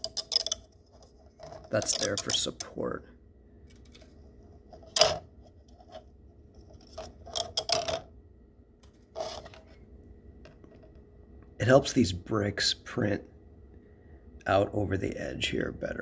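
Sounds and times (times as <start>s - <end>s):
plastic clicks: 0.0s - 2.7s
plastic scrape: 9.0s - 9.8s.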